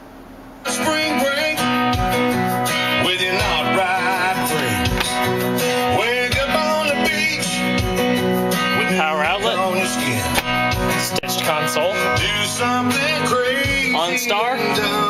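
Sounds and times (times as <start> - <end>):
country music on car stereo: 0.6 - 15.0.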